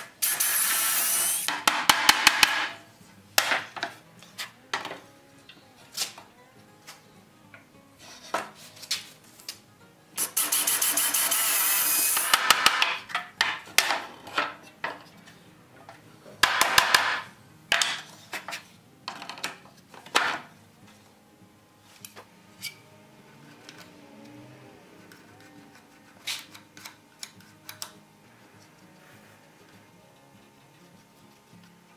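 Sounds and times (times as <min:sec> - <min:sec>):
power drill driving screws: 0:00.2 - 0:01.5, 0:10.2 - 0:12.7
knocks and clicks of tools: 0:01.5 - 0:02.8, 0:12.2 - 0:15.0, 0:16.4 - 0:20.5.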